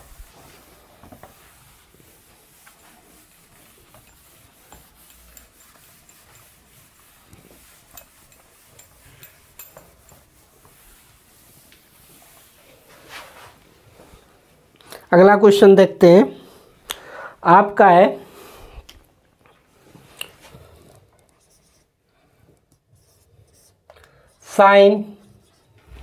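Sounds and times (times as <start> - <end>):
cloth wiping whiteboard: 0.0 - 14.6.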